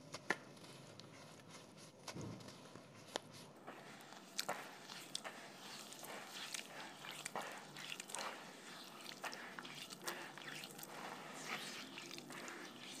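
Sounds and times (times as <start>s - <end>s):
wet mud squelching: 3.7s - 13.0s
small smacks and splashes: 4.2s - 13.0s.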